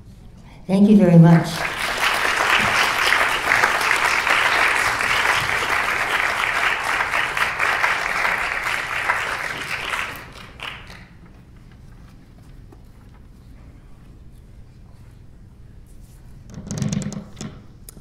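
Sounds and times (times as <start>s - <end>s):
audience applauding: 0.9s - 11.4s.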